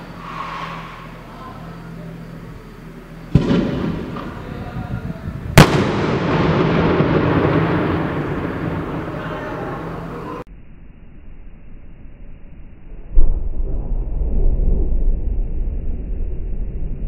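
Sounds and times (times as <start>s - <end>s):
rolling echo: 3.2s - 10.4s
cannon firing: 3.3s - 4.8s, 5.5s - 10.2s.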